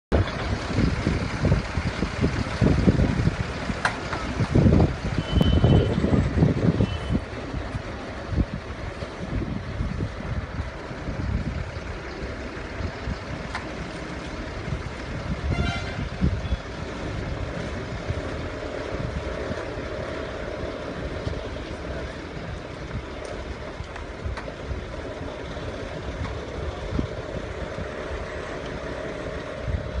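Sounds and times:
vehicle rumbling along rails: 0:00.1 - 0:30.0
high beeping alarm: 0:05.2 - 0:06.0.

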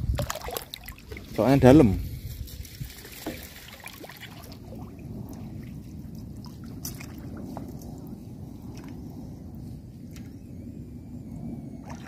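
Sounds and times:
water sloshing around wading person: 0:00.0 - 0:08.1.

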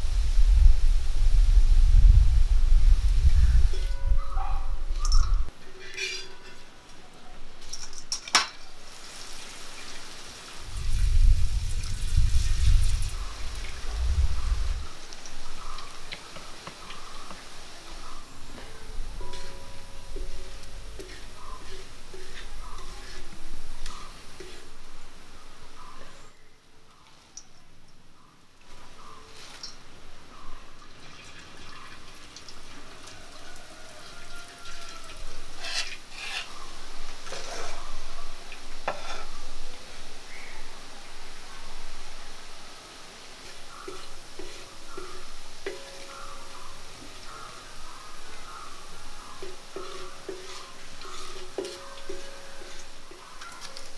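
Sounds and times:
faint steady background noise: 0:00.0 - 0:53.9
oil sizzling and crackling: 0:05.0 - 0:26.3, 0:28.7 - 0:53.9
utensils scraping and knocking: 0:05.1 - 0:06.8, 0:20.2 - 0:24.7, 0:35.6 - 0:36.6, 0:37.2 - 0:37.9, 0:49.4 - 0:53.9.

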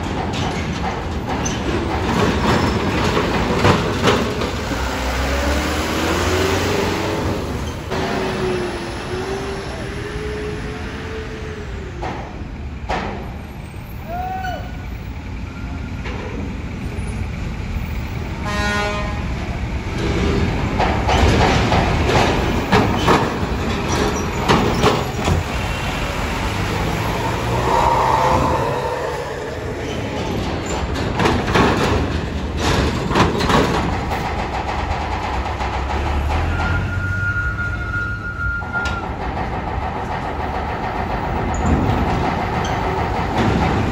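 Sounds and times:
wheels clanking over steel plates: 0:00.0 - 0:08.9, 0:19.8 - 0:43.9
bus and truck engines running: 0:00.0 - 0:43.9.

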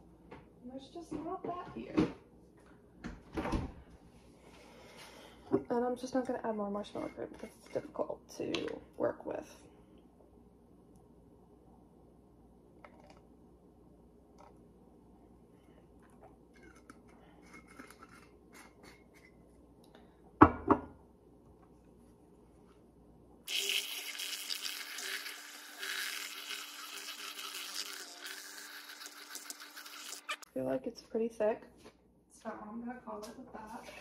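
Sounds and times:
milk frother buzzing in a jar: 0:23.5 - 0:30.5.

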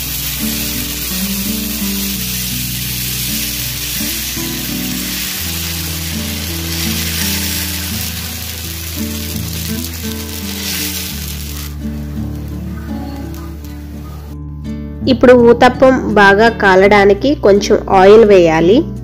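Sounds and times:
batter sizzling on a griddle: 0:00.0 - 0:13.4
background music: 0:00.0 - 0:19.0.

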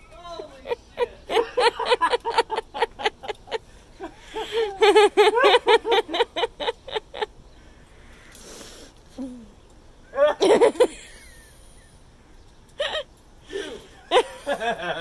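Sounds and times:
person laughing hard: 0:01.0 - 0:07.3, 0:10.2 - 0:11.5, 0:12.8 - 0:15.0
breath drawn in: 0:08.2 - 0:09.2.

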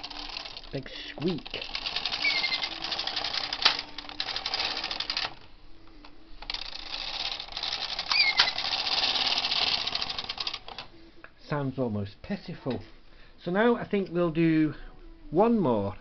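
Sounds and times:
knitting machine needles clattering: 0:00.0 - 0:10.9
short high squeak: 0:02.2 - 0:02.8, 0:08.1 - 0:08.6.

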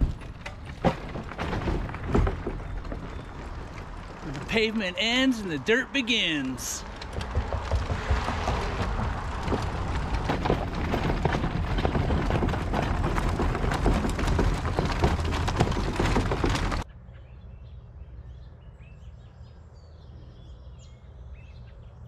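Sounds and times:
bike rumbling on dirt trail: 0:00.0 - 0:16.9
birds chirping: 0:02.0 - 0:07.6, 0:14.2 - 0:22.0.

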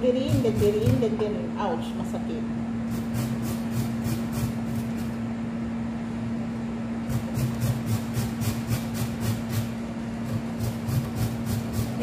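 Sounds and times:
steady low hum: 0:00.0 - 0:12.0
squash grated on metal grater: 0:00.2 - 0:01.0, 0:02.9 - 0:05.1, 0:07.1 - 0:12.0.

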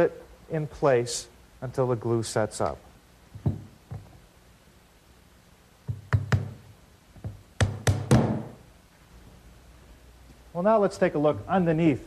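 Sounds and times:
hammer striking nails into wood: 0:05.9 - 0:06.6, 0:07.6 - 0:08.6.

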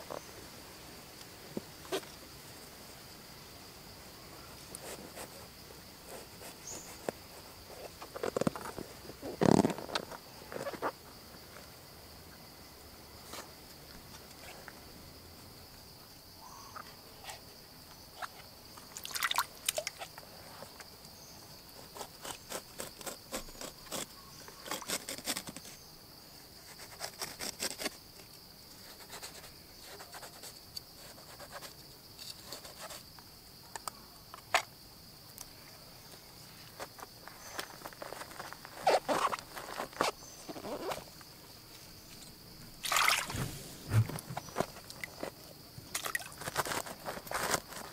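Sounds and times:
high insect drone: 0:00.0 - 0:47.9
knife crunching through gourd: 0:21.8 - 0:25.8.

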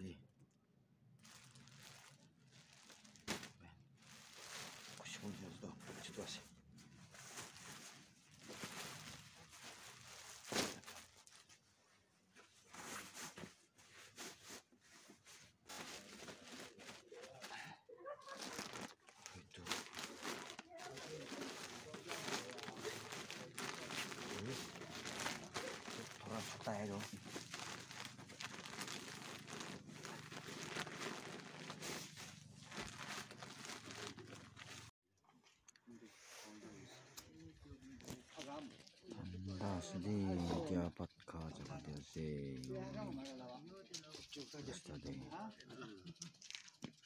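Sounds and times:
plastic bag crinkling: 0:01.2 - 0:06.3, 0:07.0 - 0:11.5, 0:15.7 - 0:34.9.

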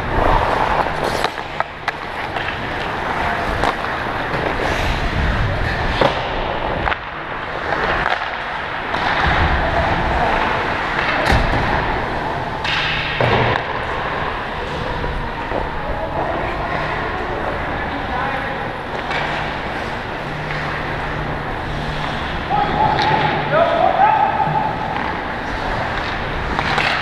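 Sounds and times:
hockey sticks and puck clacking: 0:00.0 - 0:27.0
skate blades scraping on ice: 0:00.1 - 0:11.2.

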